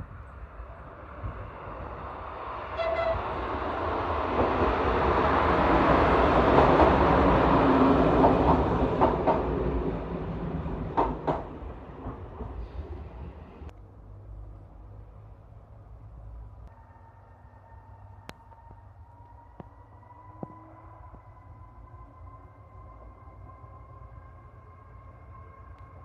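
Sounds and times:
train passing: 0:00.0 - 0:26.0
train horn toot: 0:02.8 - 0:03.4, 0:20.3 - 0:21.2
wheels clacking over rail joints: 0:05.8 - 0:12.7.

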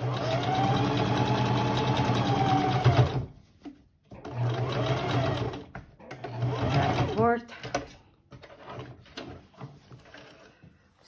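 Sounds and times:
electric sewing machine running: 0:00.0 - 0:03.2, 0:04.3 - 0:05.6, 0:06.2 - 0:07.2.

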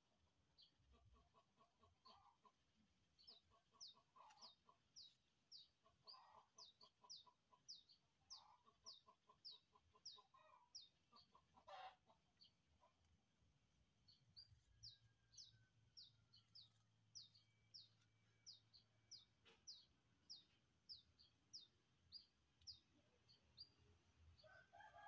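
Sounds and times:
chickens clucking: 0:00.6 - 0:13.2, 0:14.4 - 0:23.8.

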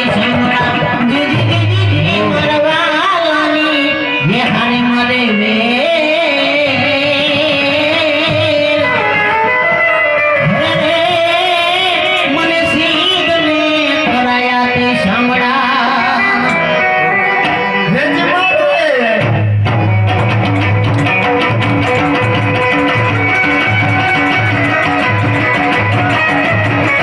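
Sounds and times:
person singing: 0:00.0 - 0:19.3
folk music melody: 0:00.0 - 0:27.0
heavy drum beat: 0:19.2 - 0:27.0.

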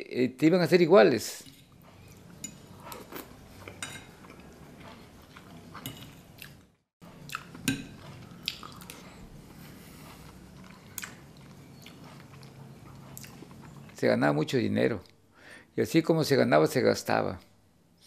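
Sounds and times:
man biting and chewing food: 0:01.4 - 0:14.0.

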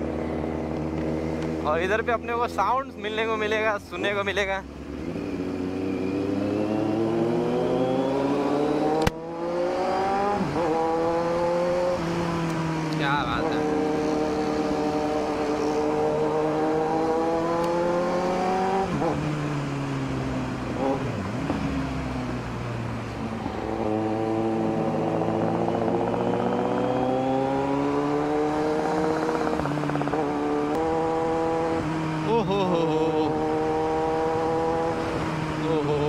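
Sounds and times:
motorcycle engine running: 0:19.1 - 0:36.0.

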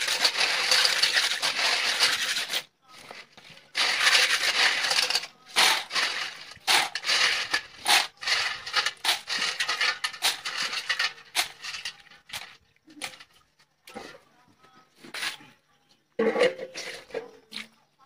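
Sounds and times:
snail shells rattling in metal bowl: 0:00.0 - 0:13.4.

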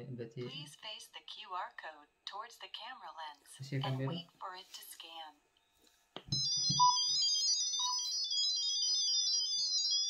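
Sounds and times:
high electronic beeps: 0:06.3 - 0:10.0.

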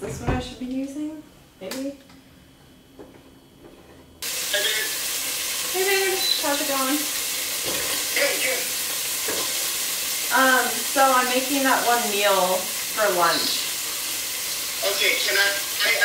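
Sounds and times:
food sizzling in oil: 0:04.2 - 0:16.0
voices talking: 0:04.4 - 0:05.1, 0:05.7 - 0:07.1.

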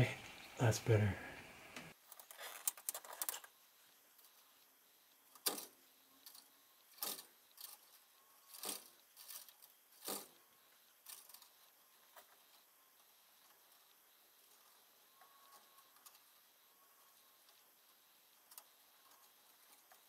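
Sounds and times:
wires and wire nut rustling: 0:02.0 - 0:16.4.

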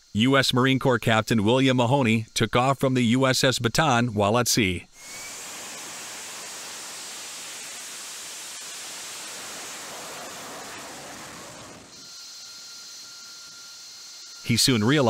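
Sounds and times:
jet engine roaring while hovering: 0:05.0 - 0:12.0.

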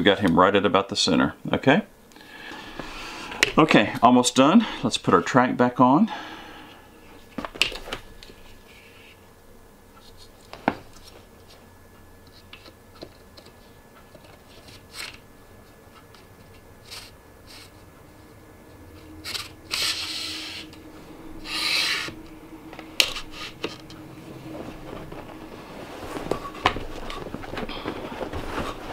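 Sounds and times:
scraping rubs: 0:21.4 - 0:22.2, 0:23.0 - 0:28.9.

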